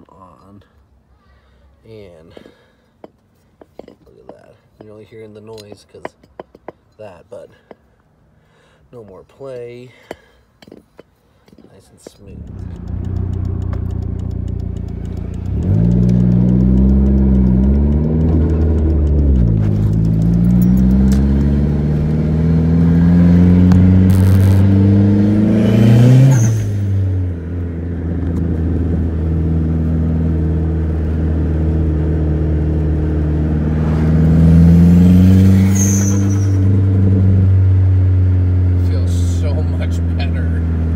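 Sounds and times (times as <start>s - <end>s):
car engine revving in cabin: 12.3s - 40.9s.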